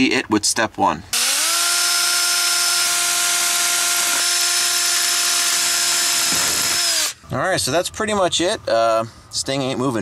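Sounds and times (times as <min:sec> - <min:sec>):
drill motor whining: 0:01.2 - 0:07.3.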